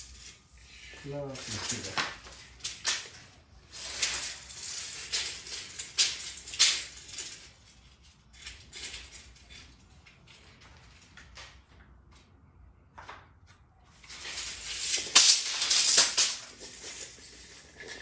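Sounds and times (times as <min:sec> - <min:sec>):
tape measure and molding scraping: 0:00.0 - 0:09.7, 0:14.0 - 0:18.0.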